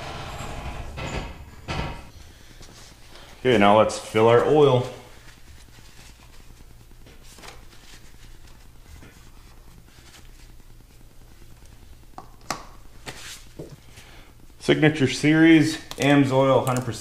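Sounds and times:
steady low hum: 0.0 - 17.0
plastic funnel clicks and rustles: 15.9 - 17.0.

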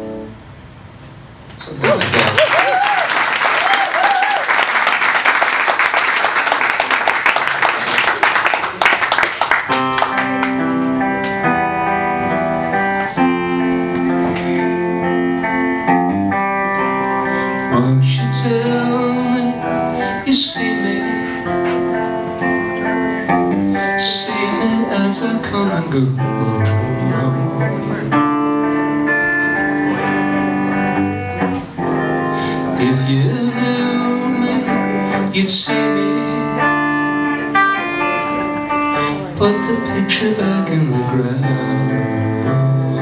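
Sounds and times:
electric guitar through amp: 0.0 - 0.6, 9.6 - 43.0.

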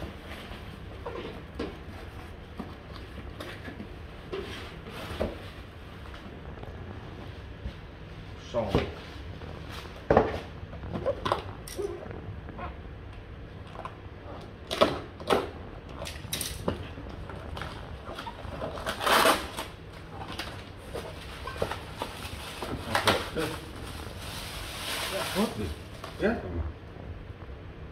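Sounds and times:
plastic bag crinkling: 20.8 - 26.3.

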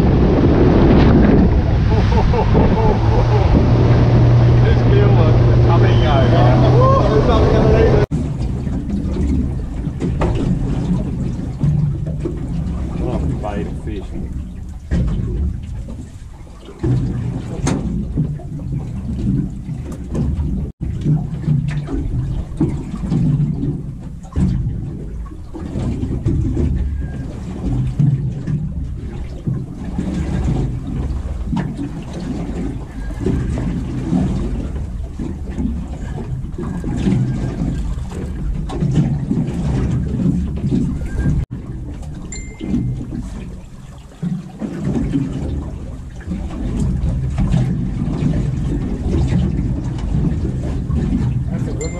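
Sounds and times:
wind gusting: 0.0 - 11.4
water around a boat: 0.0 - 51.9.

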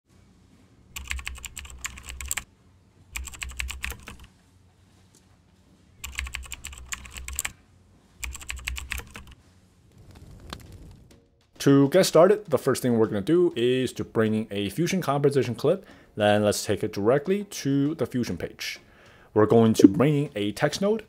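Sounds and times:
rapid keyboard typing: 0.9 - 2.5, 3.2 - 4.3, 6.0 - 7.5, 8.2 - 9.4.

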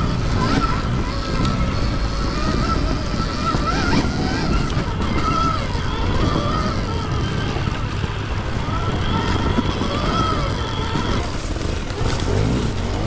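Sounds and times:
electric motorbike motor whining: 0.0 - 13.0
wind and ground rumble: 0.0 - 13.0.

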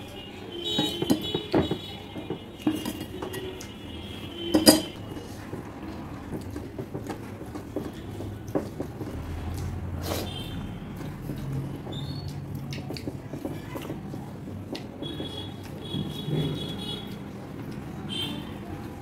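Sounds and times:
ladle clinking on plates: 0.8 - 3.7, 4.5 - 5.0.

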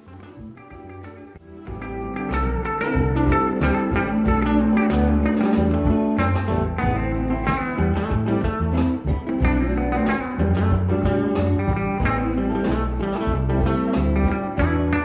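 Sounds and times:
low bass notes: 0.0 - 15.0
plucked bluesy guitar: 0.0 - 15.0.

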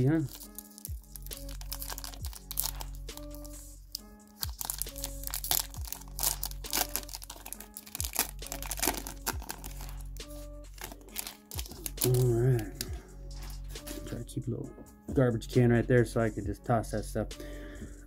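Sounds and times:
background music with beat: 0.0 - 18.0
foil wrapper tearing and crinkling: 0.2 - 12.6.

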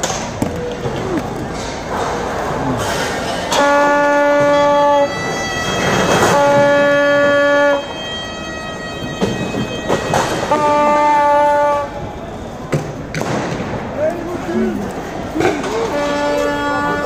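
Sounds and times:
street din: 0.0 - 17.0
horn blasts: 3.5 - 12.7, 15.6 - 17.0
sharp bangs: 12.6 - 14.0.

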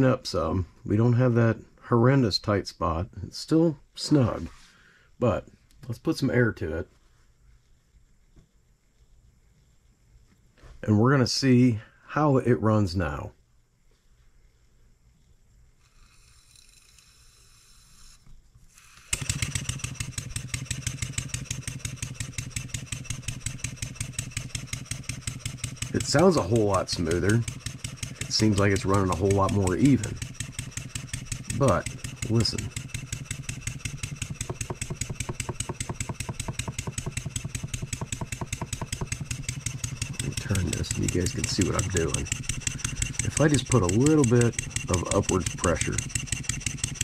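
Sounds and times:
model steam engine exhaust puffing: 18.7 - 47.0.

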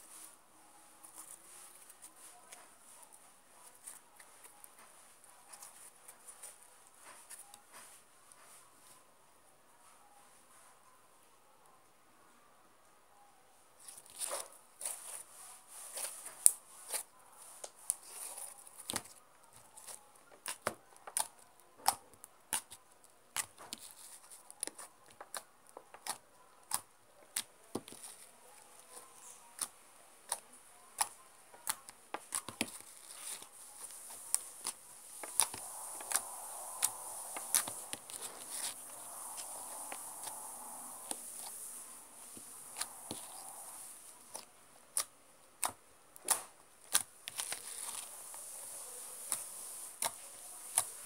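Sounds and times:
slime squishing: 13.8 - 51.0.

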